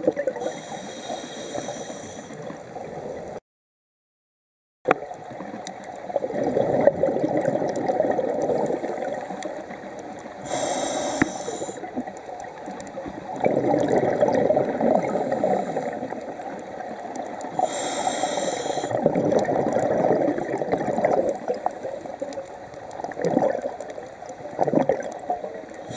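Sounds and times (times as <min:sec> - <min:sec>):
regulator hissing inhalation: 0:00.4 - 0:02.4, 0:10.4 - 0:11.9, 0:17.6 - 0:19.0
regulator bubbling exhalations: 0:13.4 - 0:16.2, 0:17.5 - 0:22.0, 0:24.6 - 0:25.2.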